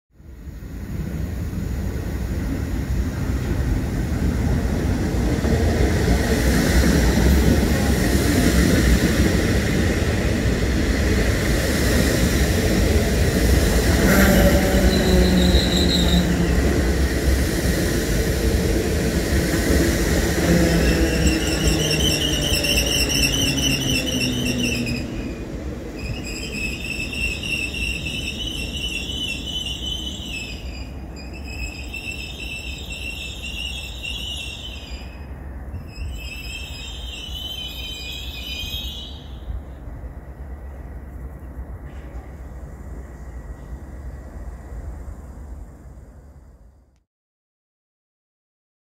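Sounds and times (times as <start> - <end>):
train wheels rumbling on rails: 0.4 - 46.6
high warbling squeal: 14.2 - 17.0, 20.4 - 35.2, 35.8 - 39.5.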